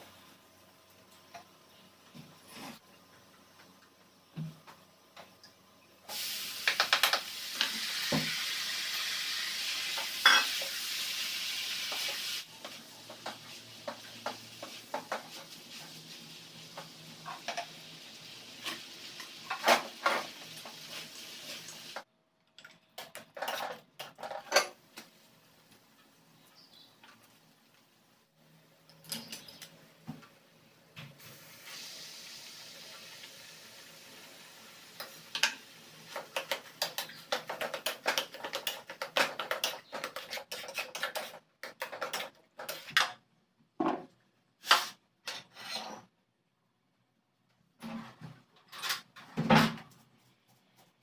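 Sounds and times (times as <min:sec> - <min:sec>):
food sizzling in wok: 0:06.1 - 0:22.1, 0:31.2 - 0:41.4
spatula scraping wok: 0:36.1 - 0:43.1, 0:44.6 - 0:46.1.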